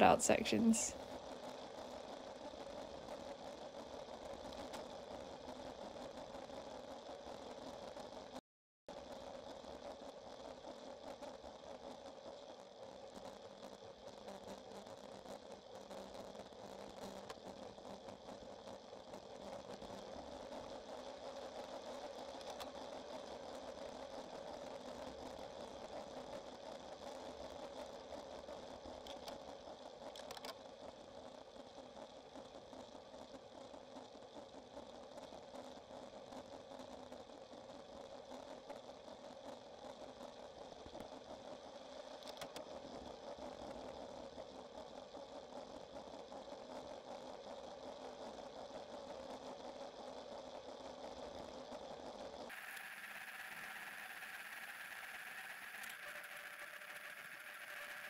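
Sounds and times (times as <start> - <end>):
bicycle road noise on tarmac: 52.5 - 58.0.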